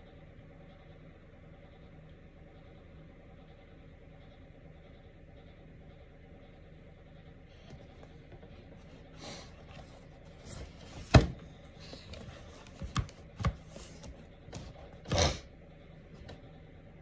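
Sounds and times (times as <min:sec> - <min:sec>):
book pages turning: 0:09.5 - 0:15.0.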